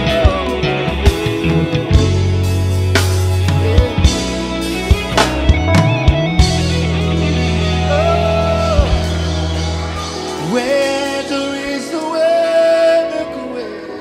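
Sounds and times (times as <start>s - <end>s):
man singing long notes: 0.0s - 2.3s, 7.3s - 14.0s
heavy bass and drums: 0.0s - 11.4s
live gospel band: 0.0s - 14.0s.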